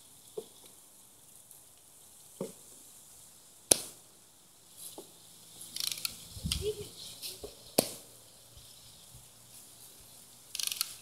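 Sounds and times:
cluster of clicks: 5.7 - 6.8, 10.5 - 11.0.

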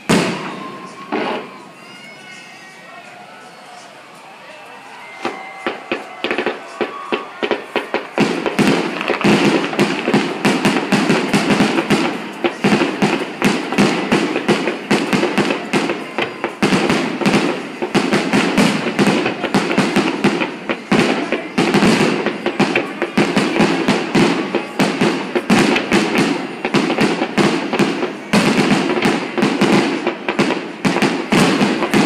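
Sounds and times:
fireworks bangs and crackles: 0.0 - 32.0.

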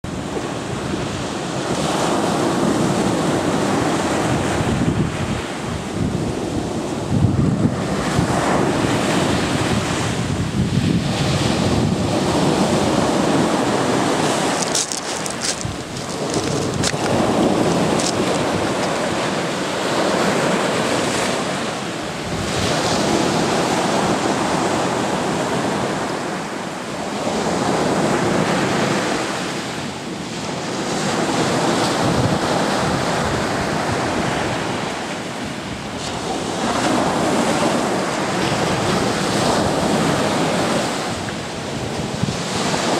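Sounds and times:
wind rumbling on microphone: 0.0 - 42.9
waves crashing on shore: 0.1 - 42.9.

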